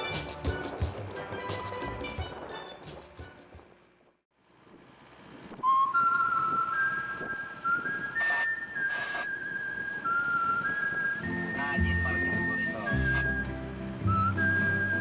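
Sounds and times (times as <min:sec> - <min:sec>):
steel-drum music: 0:00.0 - 0:03.7
person whistling a slow tune: 0:05.6 - 0:15.0.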